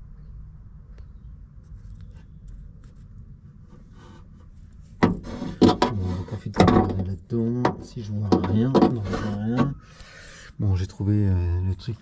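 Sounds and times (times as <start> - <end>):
car door clack and creak: 5.0 - 9.8.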